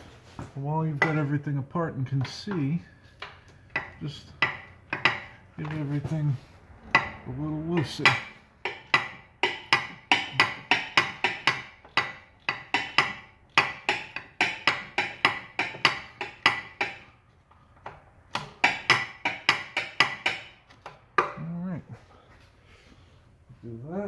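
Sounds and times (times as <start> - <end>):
ratchet wrench clicking: 7.8 - 16.9.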